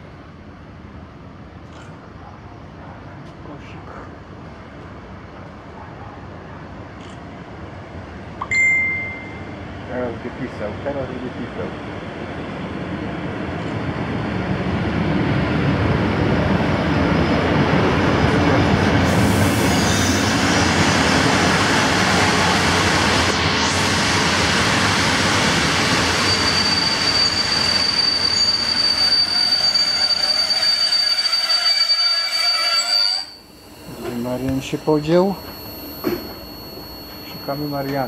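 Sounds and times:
high-pitched brake squeal: 19.1s - 21.0s, 25.4s - 38.0s.

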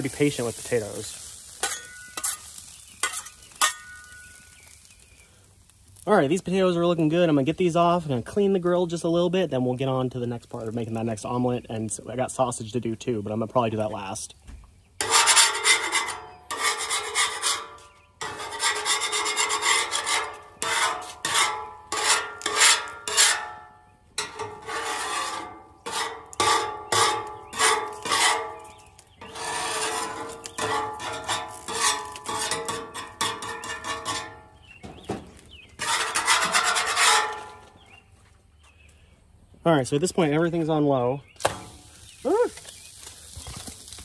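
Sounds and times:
metal spatula scraping griddle: 0.0s - 5.0s, 15.0s - 35.1s, 35.7s - 37.9s.

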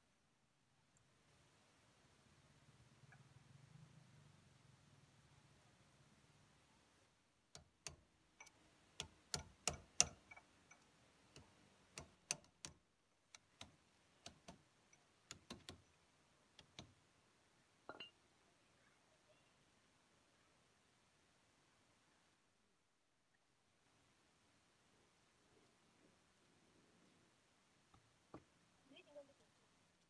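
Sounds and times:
hammer tapping steel pipe: 7.6s - 12.7s.

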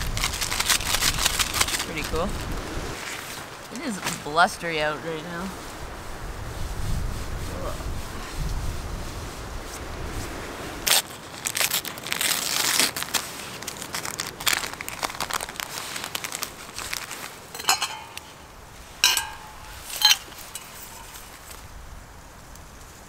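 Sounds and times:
paper packet crinkling: 0.0s - 2.4s, 10.9s - 18.4s
metal pot and lid clinks: 17.5s - 18.4s, 19.0s - 21.3s.

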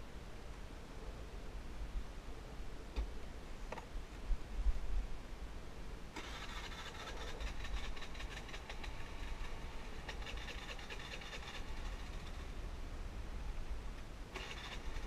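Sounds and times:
motor scooter engine running: 6.2s - 12.5s, 14.3s - 15.0s.

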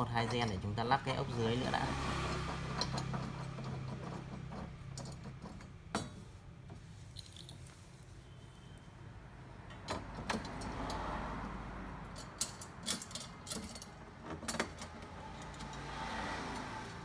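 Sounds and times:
small metallic clicks and clinks: 7.2s - 7.8s, 12.0s - 15.9s.

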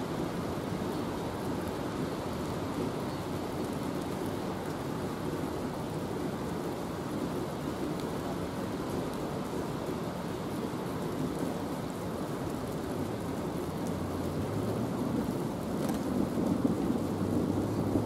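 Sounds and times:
heavy rain hiss: 0.0s - 18.0s.

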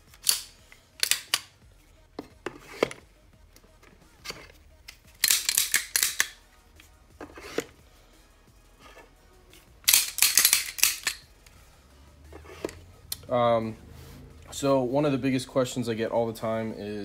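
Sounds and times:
metal and plastic clicks of pistols: 0.0s - 1.6s, 4.8s - 6.4s, 9.8s - 11.6s.

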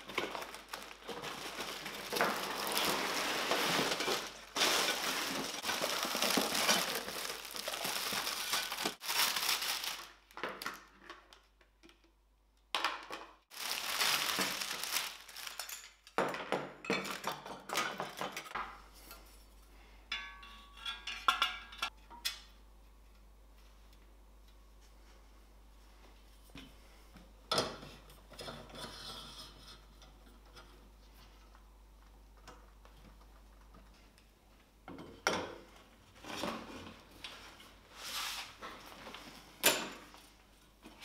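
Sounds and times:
plastic packaging crinkling: 0.0s - 10.3s, 13.5s - 15.9s.

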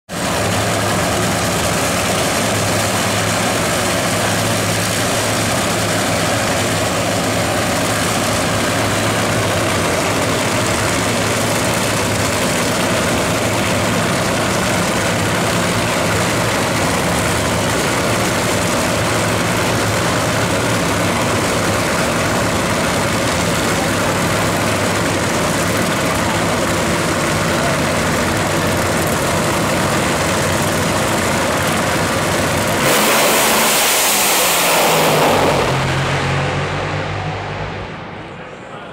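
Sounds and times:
race car engines idling: 0.1s - 38.9s.

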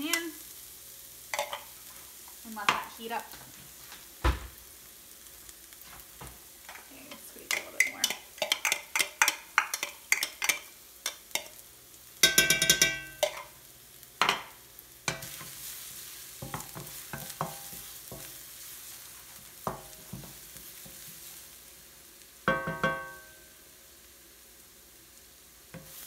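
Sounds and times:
garlic sizzling in oil: 0.0s - 26.0s
spoon clinking against wok: 1.3s - 1.7s, 6.7s - 11.6s, 12.2s - 13.5s, 22.5s - 23.4s.

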